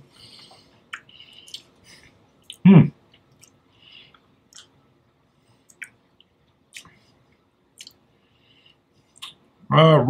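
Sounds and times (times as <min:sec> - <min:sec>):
tongue clicks and lip smacks: 0:00.9 - 0:01.7, 0:02.4 - 0:04.8, 0:05.6 - 0:07.0, 0:07.8 - 0:08.0, 0:09.1 - 0:09.4.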